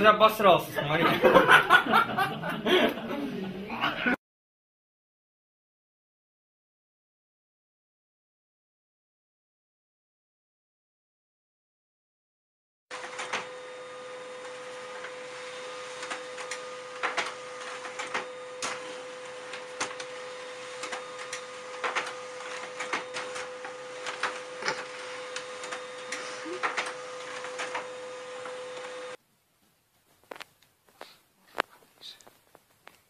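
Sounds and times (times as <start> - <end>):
laser printer humming: 12.9 - 29.2.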